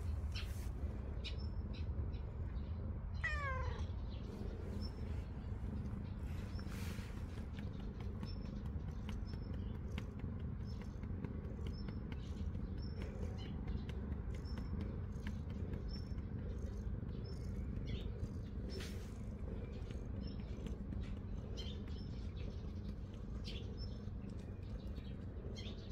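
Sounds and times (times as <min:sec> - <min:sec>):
small birds chirping: 0:00.0 - 0:25.9
steady low rumble: 0:00.0 - 0:25.9
hand stroking cat fur: 0:00.2 - 0:00.8, 0:04.3 - 0:25.6.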